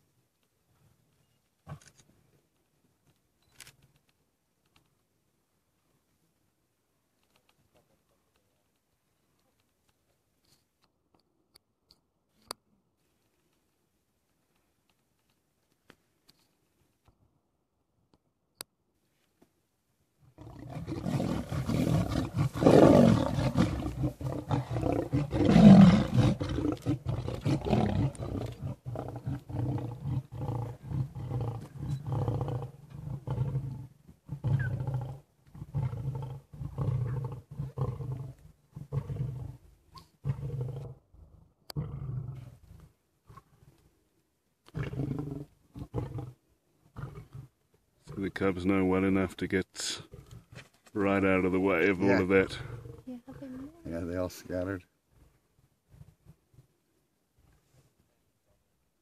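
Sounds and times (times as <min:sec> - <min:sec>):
lion grunting roars: 0:20.4 - 0:39.6, 0:51.9 - 0:53.4
lion roaring: 0:20.4 - 0:41.0, 0:41.7 - 0:42.6, 0:44.7 - 0:48.2.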